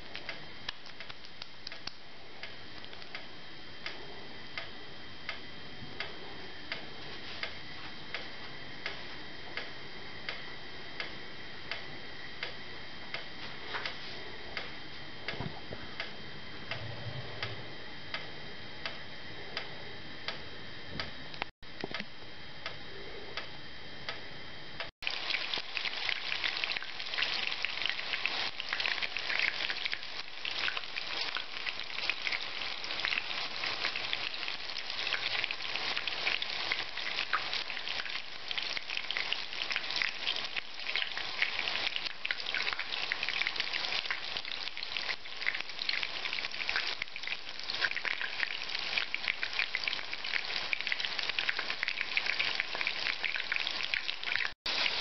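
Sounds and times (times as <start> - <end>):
cutlets frying in oil: 25.0 - 55.0.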